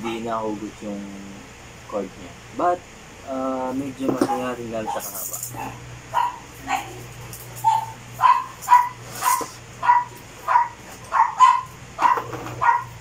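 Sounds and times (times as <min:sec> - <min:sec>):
dog barking: 0:04.8 - 0:07.0, 0:07.6 - 0:13.0.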